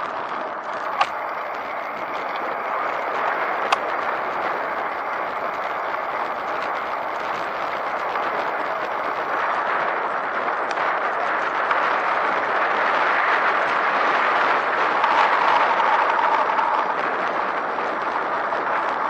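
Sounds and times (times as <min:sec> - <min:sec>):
bicycle tyres on asphalt: 0:00.0 - 0:19.0
wind on microphone: 0:00.0 - 0:19.0
sharp clicks: 0:00.7 - 0:09.3.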